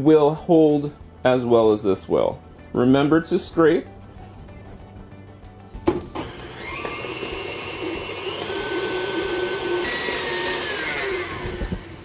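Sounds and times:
stand mixer motor whine: 6.2 - 12.0.

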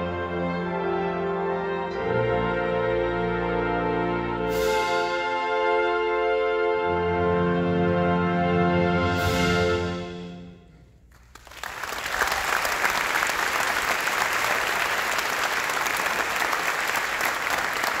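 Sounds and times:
audience applause: 11.1 - 18.0.

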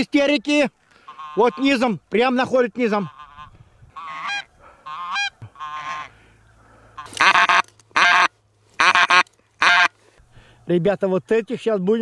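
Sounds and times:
goose honking: 1.0 - 1.9, 2.8 - 10.0.

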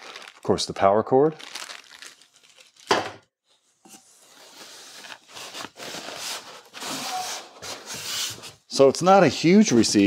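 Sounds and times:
sharp packaging rustle: 1.4 - 3.0.

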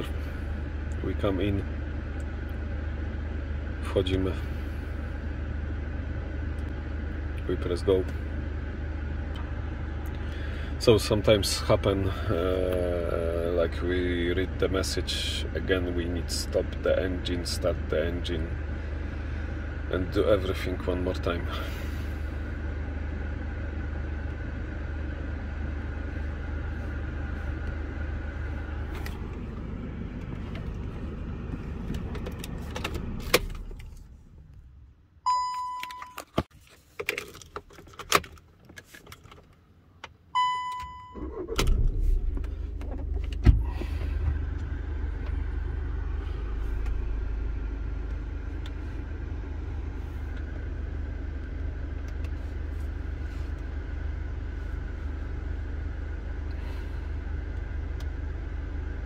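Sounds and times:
diesel engine idling: 0.0 - 35.4, 40.4 - 59.0
short beeps: 35.2 - 36.2, 40.4 - 41.3.

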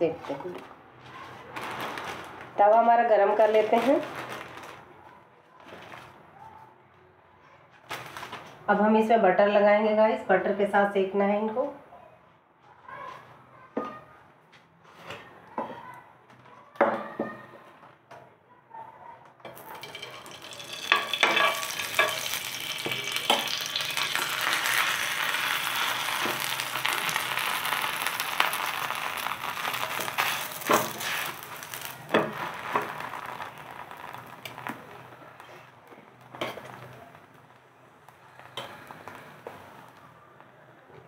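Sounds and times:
butter sizzling on a pan: 19.5 - 35.7.

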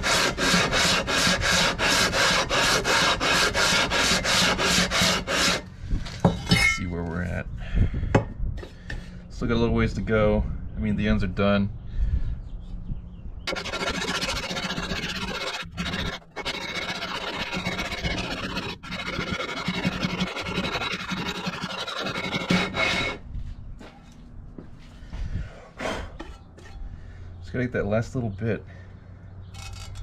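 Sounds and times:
metal scraping on sandpaper: 0.0 - 5.6, 13.5 - 23.2.

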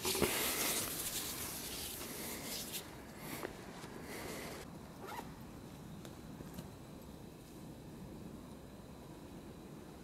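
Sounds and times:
hands rubbing and rustling rope: 0.0 - 4.0.

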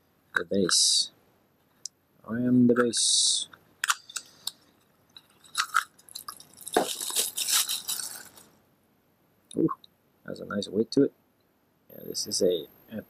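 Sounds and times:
plastic wrapping crinkling: 5.1 - 8.5.

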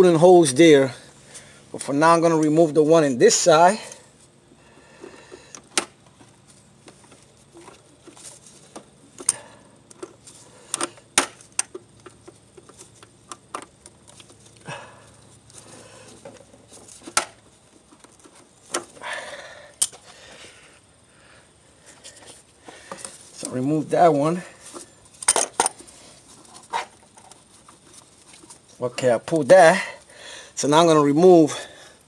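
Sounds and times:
scraping rustle: 6.1 - 9.1, 21.8 - 29.6.

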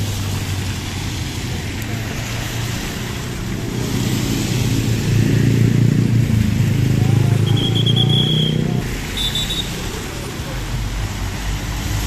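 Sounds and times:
road traffic passing: 0.0 - 12.0
short high whistle: 7.4 - 9.7.

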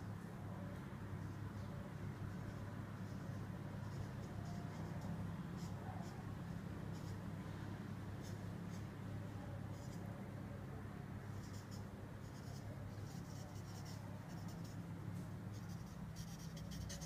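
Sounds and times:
steady low hum: 0.0 - 17.0
marker pen scratching fabric: 15.6 - 17.0.

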